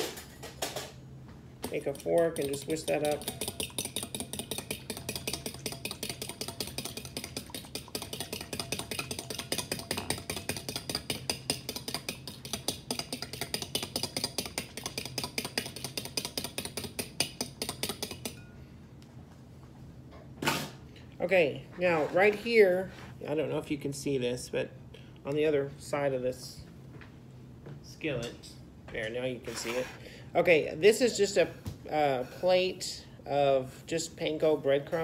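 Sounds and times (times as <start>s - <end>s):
fork whisking in glass bowl: 1.7s - 18.4s.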